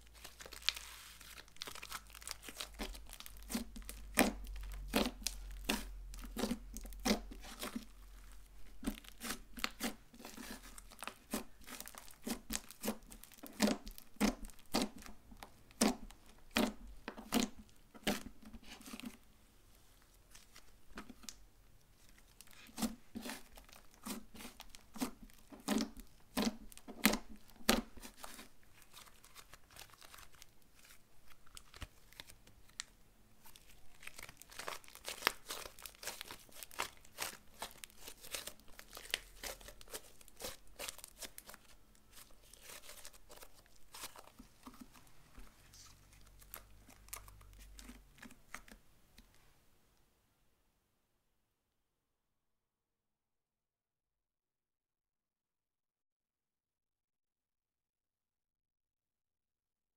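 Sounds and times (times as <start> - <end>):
slime crackling and tearing: 0.0 - 19.2, 22.0 - 45.0, 45.9 - 48.8
slime squishing: 0.0 - 19.2, 19.8 - 48.8.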